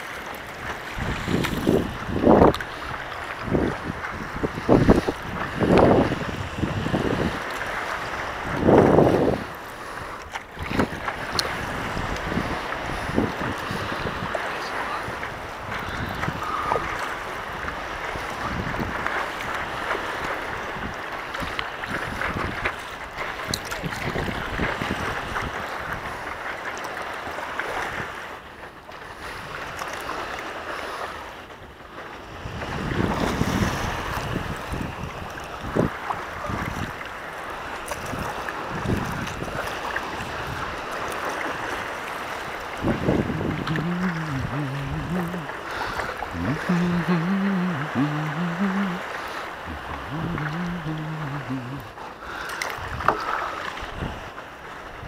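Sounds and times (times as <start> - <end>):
wind on microphone: 0.0 - 26.3, 32.2 - 55.0
water sloshing and splashing: 0.0 - 55.0
person humming: 43.2 - 52.4.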